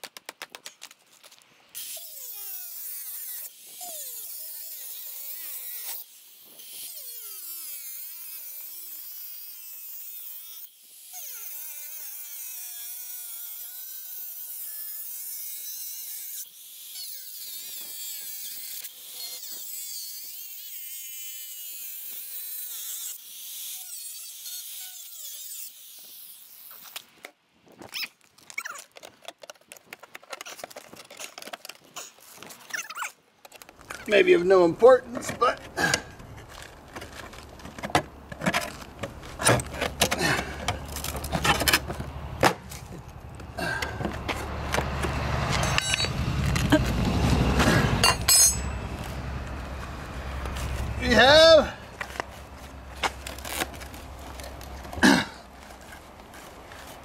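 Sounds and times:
angle grinder cutting steel: 38.7s - 55.0s.

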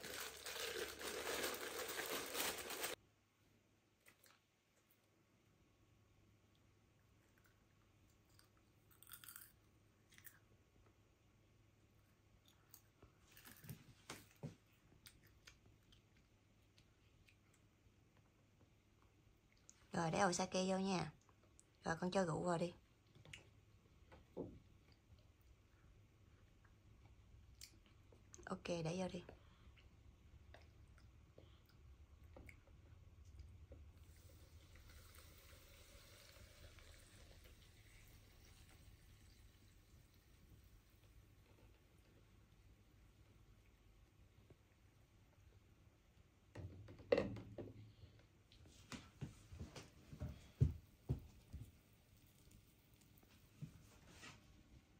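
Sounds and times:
liquid trickling onto popcorn: 0.0s - 3.0s, 33.4s - 41.9s, 51.9s - 53.6s
child chewing popcorn: 6.6s - 11.1s, 11.9s - 19.8s.

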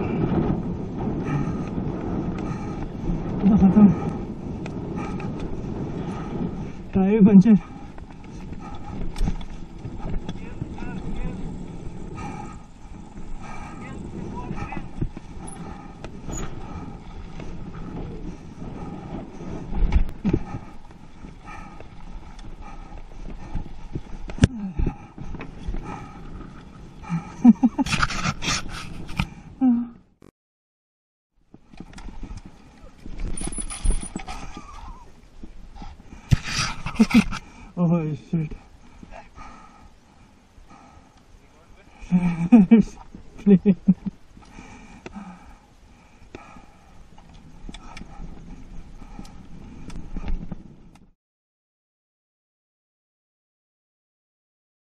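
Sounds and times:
mountain bike rattling: 0.0s - 29.6s, 31.6s - 51.0s
tyre and wind noise: 0.0s - 30.2s, 31.4s - 51.1s
bike rattles and knocks: 7.8s - 13.2s, 31.6s - 35.5s
rider vocal sounds: 10.0s - 15.8s.

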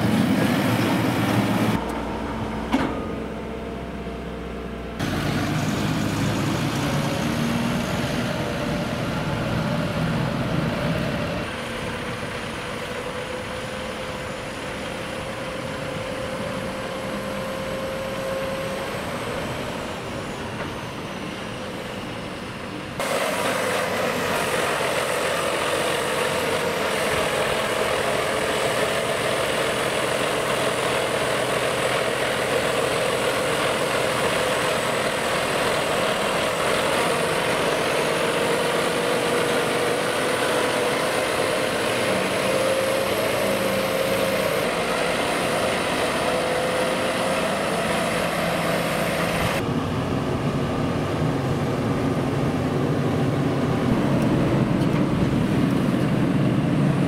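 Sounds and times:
steady whine: 0.0s - 57.0s
tractor engine running: 0.0s - 57.0s.

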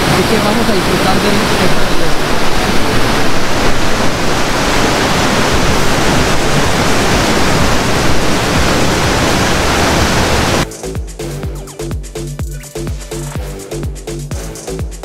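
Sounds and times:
waterfall rushing: 0.0s - 10.7s.

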